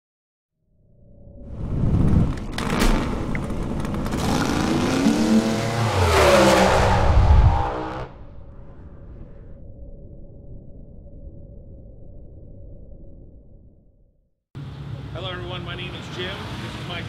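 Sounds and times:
engine cracks: 2.3s - 4.8s
race car engine revving: 2.5s - 8.2s.

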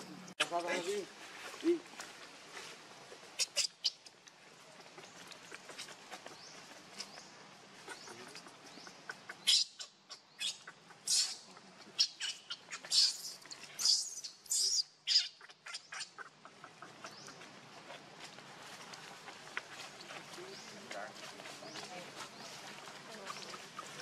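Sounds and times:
baby monkey squealing: 3.4s - 4.0s, 9.4s - 16.3s.

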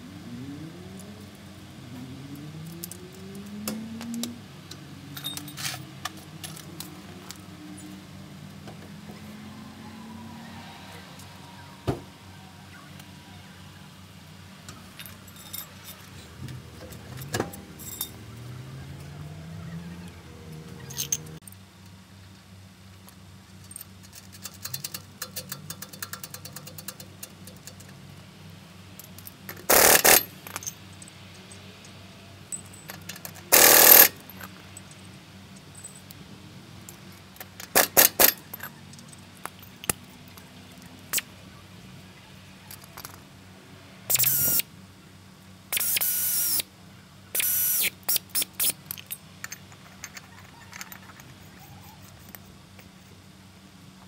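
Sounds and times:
metallic clinks of nuts and tools: 5.1s - 7.9s, 14.7s - 19.1s, 20.8s - 21.6s, 23.6s - 28.0s, 29.0s - 36.2s, 36.8s - 40.4s, 42.6s - 43.2s, 47.4s - 53.0s
pneumatic impact wrench bursts: 29.7s - 30.4s, 33.5s - 34.2s, 37.6s - 38.5s, 44.1s - 44.6s, 45.7s - 46.7s, 47.4s - 48.8s.

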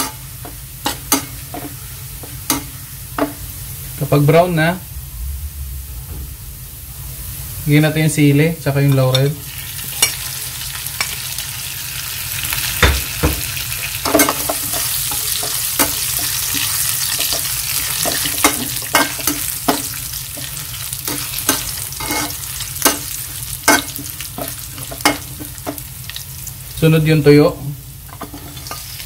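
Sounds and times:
spatula scraping a wok: 0.0s - 3.5s, 14.0s - 25.9s, 28.1s - 29.0s
spices sizzling in oil: 0.0s - 4.9s, 7.1s - 29.0s.

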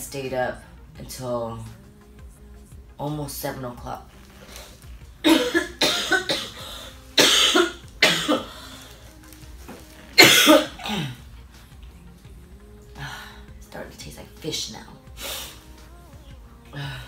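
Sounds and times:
woman coughing harshly: 5.2s - 8.5s, 10.2s - 11.2s.

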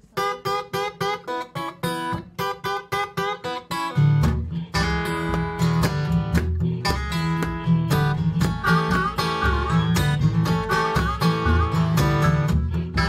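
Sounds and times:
picked treble guitar notes: 0.0s - 13.0s
deep bass guitar notes: 4.0s - 13.0s.

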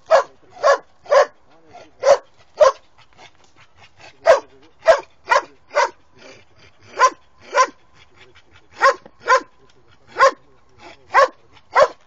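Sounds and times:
dog barking: 0.0s - 2.8s, 4.2s - 6.0s, 6.9s - 7.8s, 8.8s - 12.0s.

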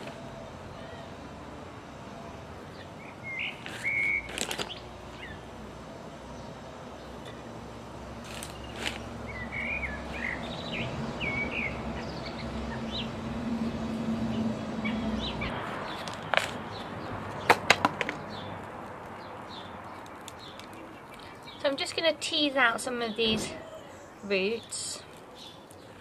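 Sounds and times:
songbird singing: 2.2s - 26.0s
sharp clicks and cracks: 15.9s - 22.0s.

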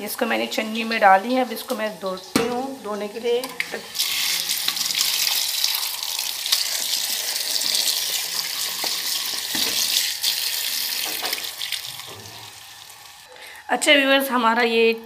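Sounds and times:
tap water splashing into colander: 6.5s - 12.4s.

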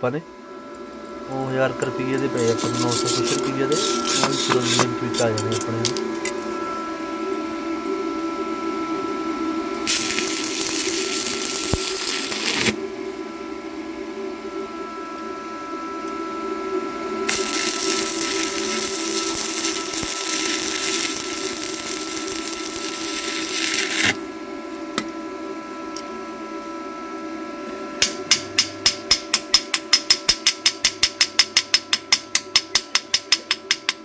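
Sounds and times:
steady hum: 0.0s - 30.4s
welding arc crackling: 9.8s - 12.8s, 17.2s - 24.2s.

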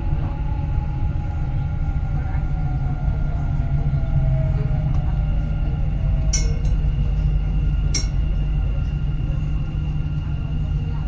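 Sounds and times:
train rumbling on track: 0.0s - 11.0s.

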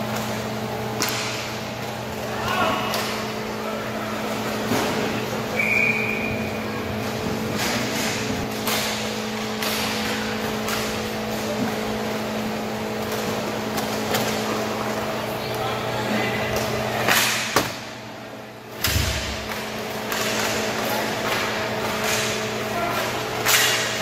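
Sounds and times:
hockey sticks and puck clacking: 0.0s - 3.4s, 7.0s - 15.0s, 16.5s - 17.8s, 18.8s - 24.0s
steady hum: 0.0s - 24.0s.

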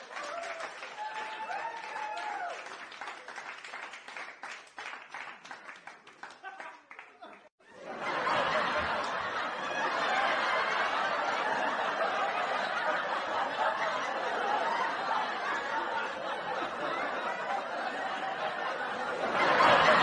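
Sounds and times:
crowd laughing and chattering: 7.7s - 20.0s.

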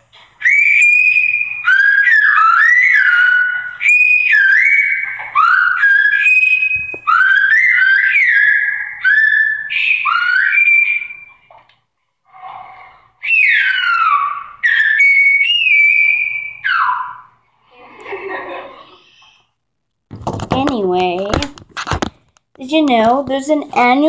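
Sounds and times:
person whistling sliding phrases: 0.4s - 11.5s, 12.3s - 17.4s.

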